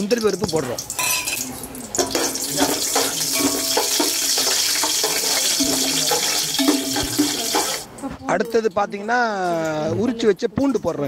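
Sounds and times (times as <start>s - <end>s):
nuts and spices sizzling in oil: 0.0s - 8.0s.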